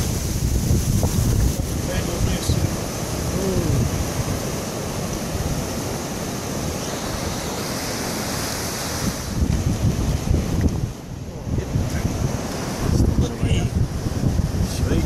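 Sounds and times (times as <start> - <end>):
surf breaking on beach: 0.0 - 15.0
wind buffeting microphone: 0.0 - 15.0.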